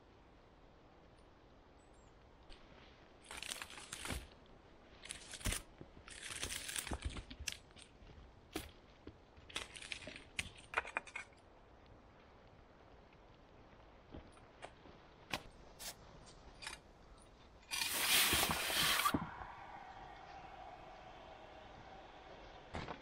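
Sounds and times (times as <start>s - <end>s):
rustling and crunching: 3.2s - 11.3s.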